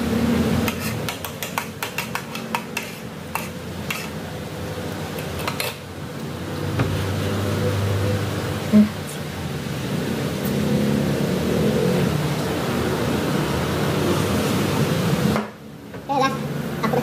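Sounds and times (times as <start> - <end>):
cutlery clinking on a plate: 0.7 - 4.1, 5.2 - 5.8.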